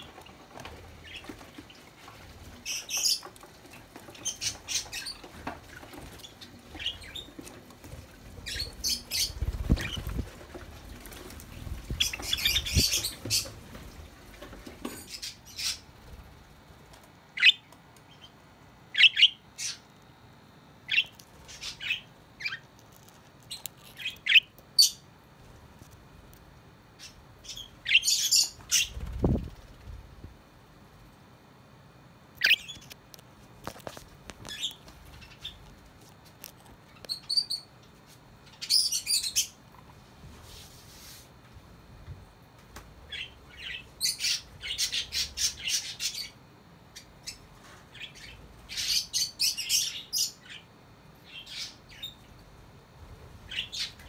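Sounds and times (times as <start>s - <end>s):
sparrows chirping: 2.6s - 3.4s, 4.0s - 11.0s, 11.6s - 13.6s, 17.4s - 19.9s, 20.9s - 22.8s, 23.4s - 25.0s, 27.0s - 29.4s, 43.1s - 46.4s, 47.0s - 52.2s, 53.5s - 54.0s.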